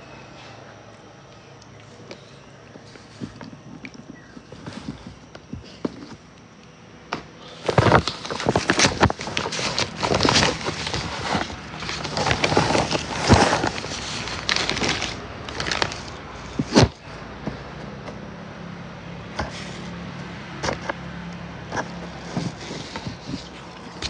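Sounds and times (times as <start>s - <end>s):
packet wrapping crinkling: 7.4s - 17.0s.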